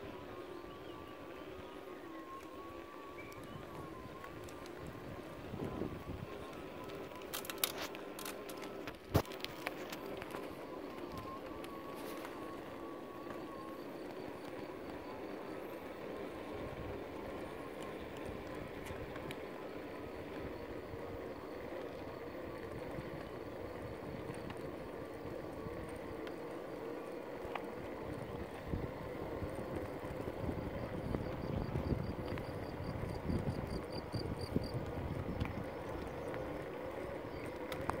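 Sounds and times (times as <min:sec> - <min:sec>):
electric wheels rolling on asphalt: 0:00.0 - 0:38.0
faint steady hum: 0:00.0 - 0:38.0
wind buffeting microphone: 0:03.3 - 0:07.2, 0:27.8 - 0:38.0.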